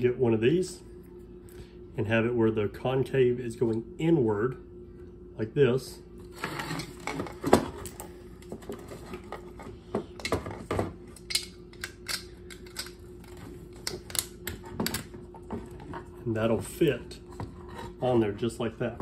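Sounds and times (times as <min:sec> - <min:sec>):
faint steady hum: 0:00.0 - 0:19.0
small parts clicking and tapping: 0:11.2 - 0:15.1.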